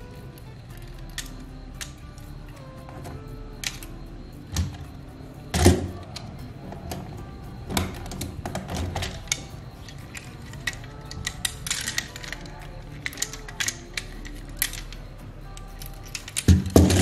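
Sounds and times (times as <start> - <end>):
plastic toy clicking and clattering: 0.7 - 2.0, 7.8 - 17.0.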